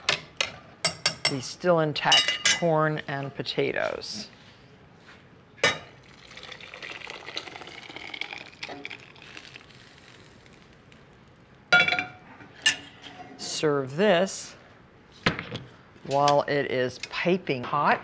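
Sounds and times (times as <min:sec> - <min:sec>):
thick soup pouring: 0:06.0 - 0:11.6.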